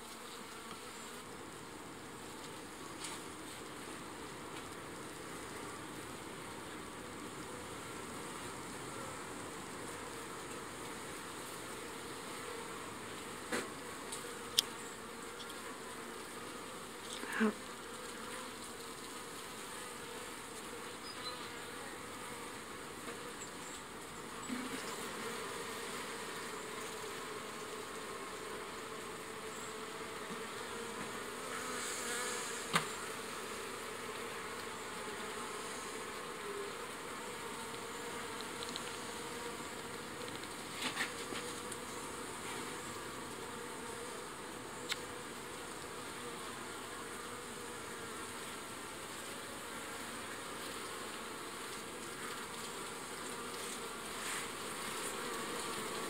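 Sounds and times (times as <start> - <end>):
bees buzzing: 11.6 - 56.0.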